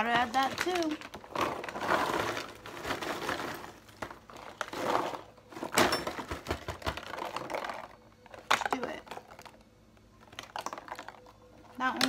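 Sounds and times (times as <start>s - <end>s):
paper bag crinkling: 0.0s - 5.9s
popcorn crunching: 0.0s - 12.0s.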